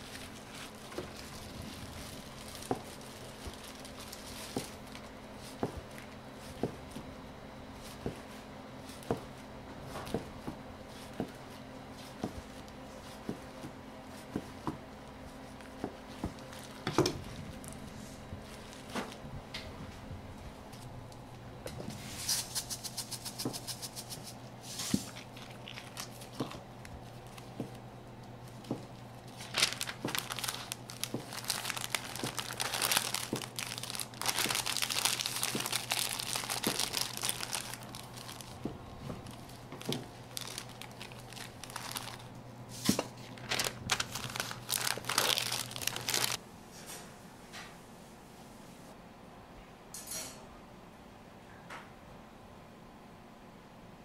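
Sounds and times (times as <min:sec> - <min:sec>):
paper crinkling and rustling: 0:00.0 - 0:07.1, 0:15.2 - 0:19.2, 0:21.9 - 0:46.4
steady low hum: 0:00.0 - 0:54.0.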